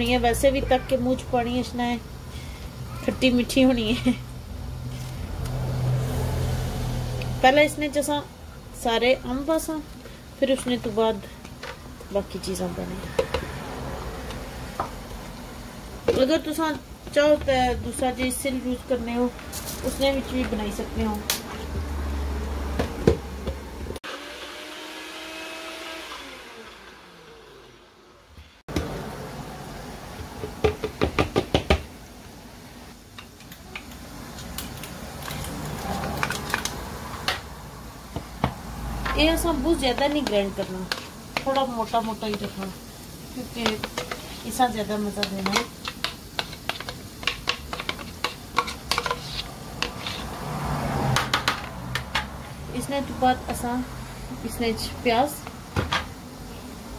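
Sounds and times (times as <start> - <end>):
blender motor grinding: 24.0 - 28.2
metal spoon scraping and tapping: 40.0 - 41.6, 43.6 - 44.4, 45.2 - 50.3.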